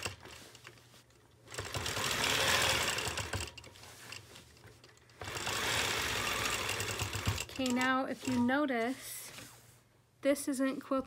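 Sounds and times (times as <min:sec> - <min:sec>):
quilting machine stitching: 0:00.0 - 0:08.6.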